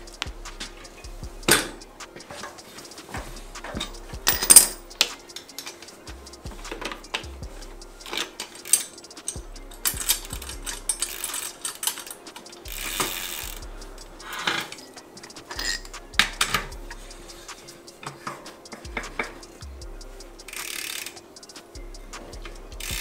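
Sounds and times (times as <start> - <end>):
bike chain clicking and rattling: 0.0 - 23.0
rear hub ratchet clicking: 0.0 - 23.0.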